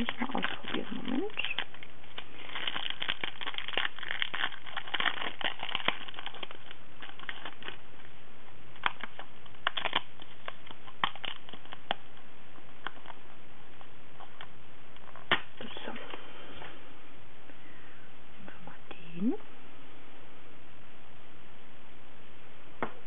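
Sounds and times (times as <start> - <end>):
plastic sheet crinkling: 0.0 - 8.1, 8.7 - 16.2.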